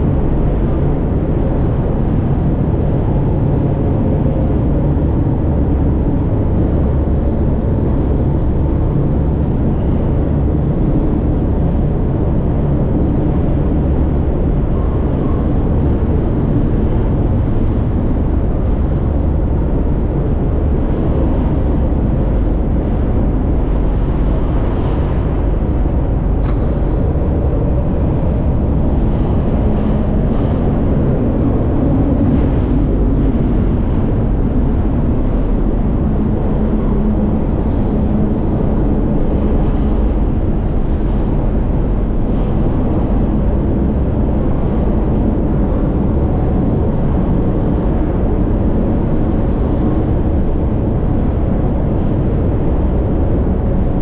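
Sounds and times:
steady low hum: 0:00.0 - 0:54.0
train wheels rumbling on rails: 0:00.0 - 0:54.0.

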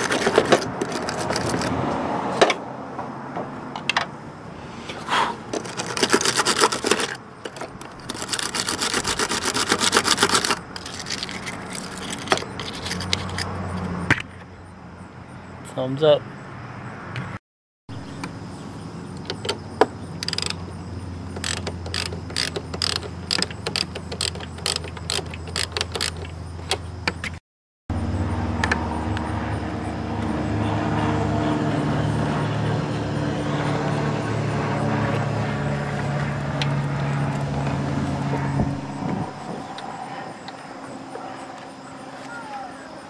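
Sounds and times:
wire brush scrubbing metal: 0:08.0 - 0:13.1
loud mechanical hum: 0:27.9 - 0:43.0.

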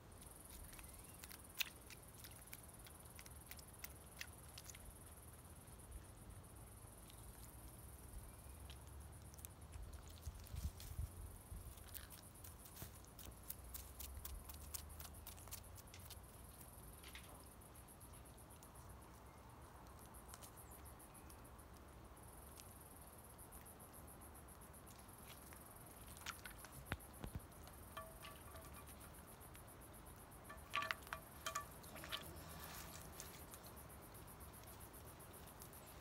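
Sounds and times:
high insect chirring: 0:25.4 - 0:36.0.

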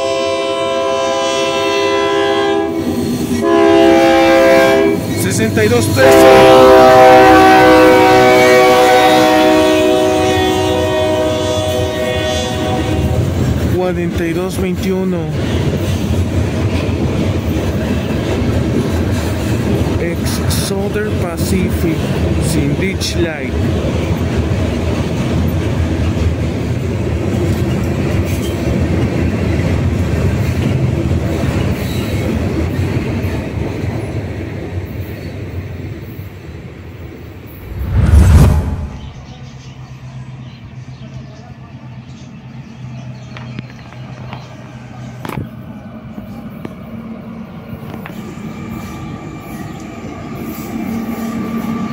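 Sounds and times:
train air horn: 0:00.0 - 0:05.1, 0:05.9 - 0:13.3
train rumbling by: 0:00.0 - 0:43.2, 0:44.0 - 0:51.9.

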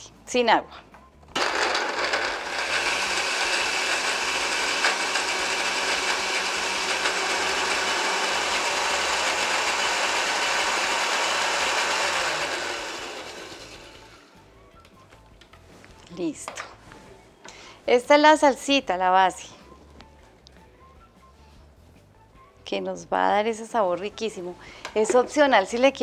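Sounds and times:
blender running: 0:01.4 - 0:14.4.

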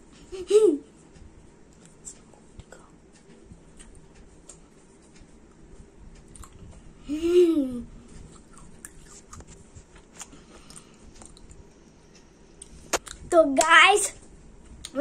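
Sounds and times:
child chewing: 0:01.7 - 0:06.9, 0:08.0 - 0:11.7.

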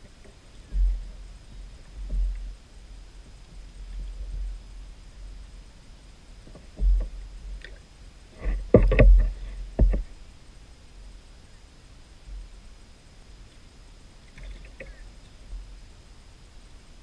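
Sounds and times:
knocks on plastic kayak: 0:08.6 - 0:10.1.

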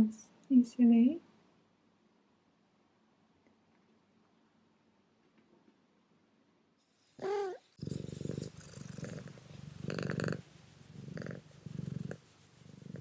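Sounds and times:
cat purring: 0:07.1 - 0:13.0.

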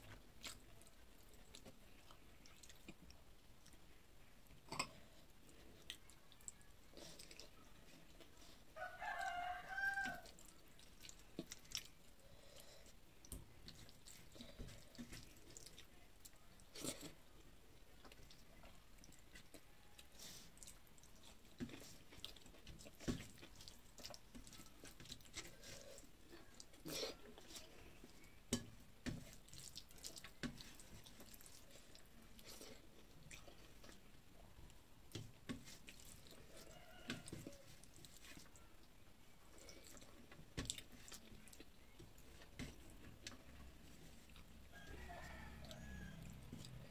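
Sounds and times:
chewing: 0:00.0 - 0:46.9
fingers mixing rice on plate: 0:18.1 - 0:34.1, 0:34.7 - 0:38.9.

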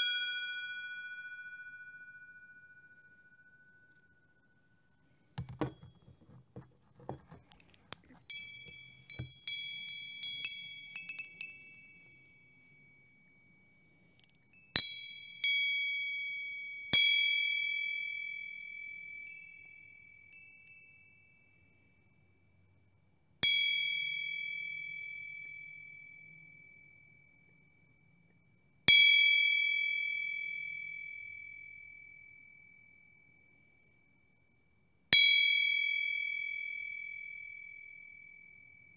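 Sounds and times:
small high-pitched bells ringing: 0:00.0 - 0:06.0, 0:08.3 - 0:22.6, 0:23.4 - 0:28.3, 0:35.4 - 0:38.9.

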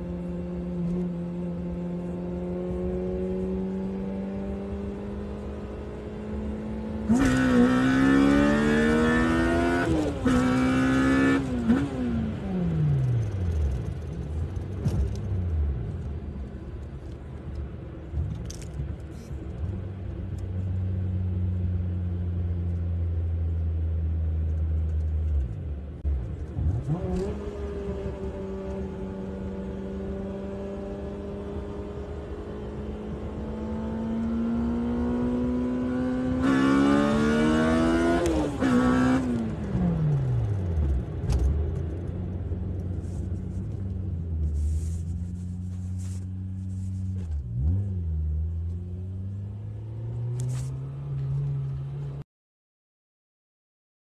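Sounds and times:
car engine revving: 0:00.2 - 0:16.0, 0:26.1 - 0:52.2.

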